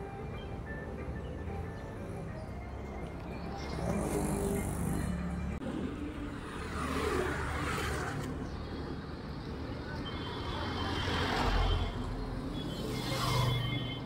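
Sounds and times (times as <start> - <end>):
vehicles passing close by: 0.0 - 14.0.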